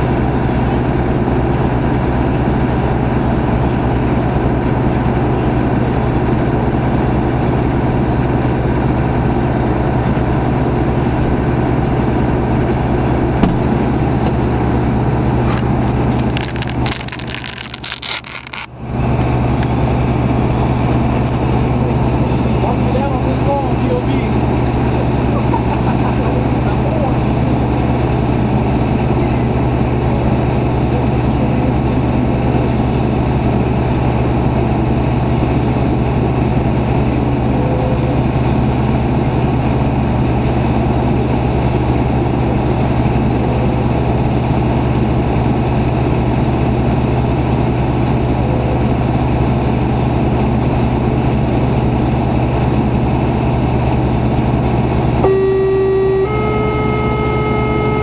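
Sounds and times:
fire truck engine idling: 0.0 - 58.0
electronic tone: 55.2 - 58.0.

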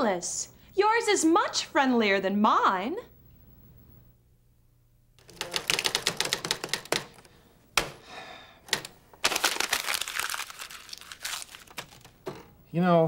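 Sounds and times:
typewriter key clacks: 5.2 - 7.2.

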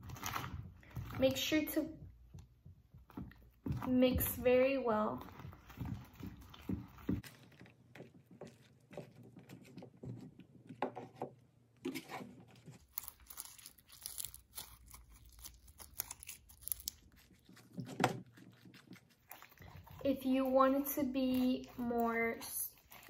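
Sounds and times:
spoon stirring slime in a bowl: 0.8 - 11.1, 16.2 - 23.0.

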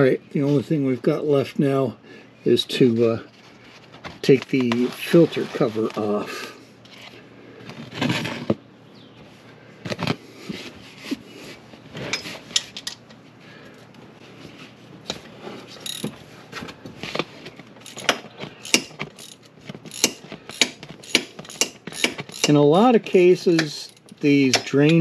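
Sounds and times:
ratchet wrench clicking: 15.8 - 16.1, 17.8 - 22.6.

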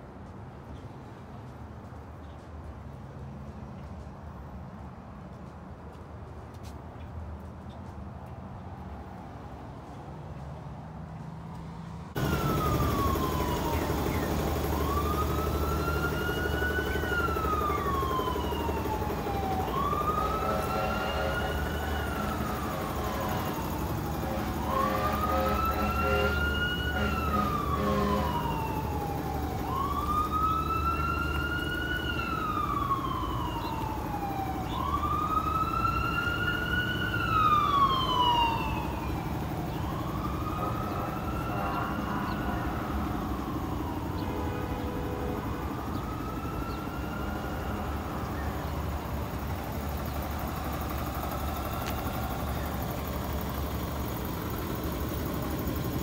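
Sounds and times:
emergency siren wailing: 12.2 - 56.0.

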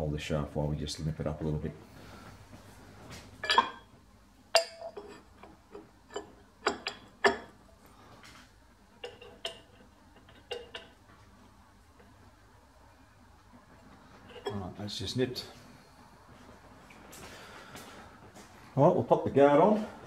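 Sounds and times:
wrench clinking on metal nut: 3.4 - 3.8, 4.5 - 7.6, 9.0 - 11.0.

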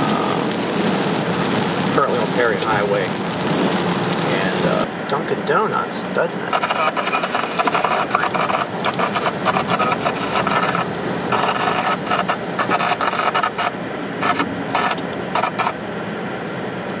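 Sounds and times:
tyre and road noise: 0.0 - 17.0.

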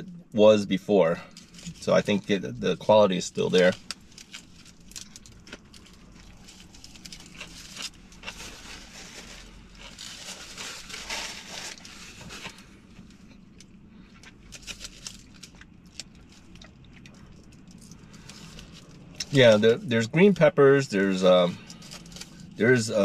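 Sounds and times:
foil wrapper crinkling: 3.4 - 13.7, 14.3 - 19.7, 21.0 - 22.8.

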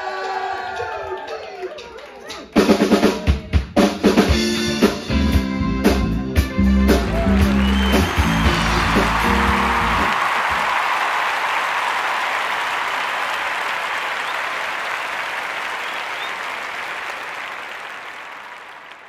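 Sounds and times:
music: 0.0 - 10.2
crowd applauding: 6.8 - 19.0.

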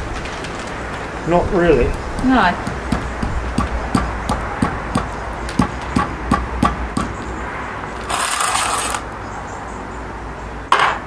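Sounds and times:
hammer knocking concrete block: 2.2 - 7.2
scrape on concrete: 7.9 - 9.1.

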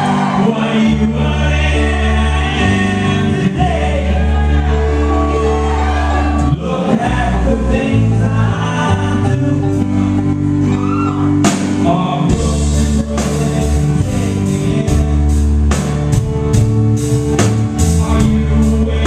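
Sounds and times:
person singing: 0.0 - 15.9, 17.8 - 19.0
acoustic guitar: 0.0 - 19.0
live folk-rock band playing: 0.0 - 19.0
bass drum steady beat: 11.4 - 19.0.

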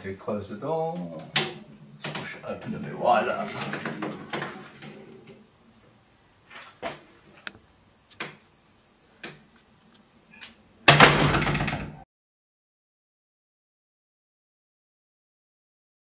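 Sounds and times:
screen door swinging shut: 10.4 - 12.0
door clicks and knocks: 10.9 - 12.0.

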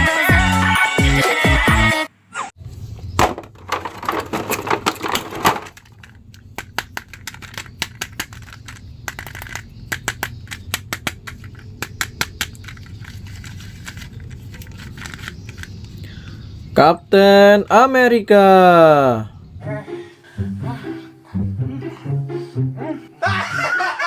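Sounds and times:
plastic clicks clattering: 3.2 - 16.0.

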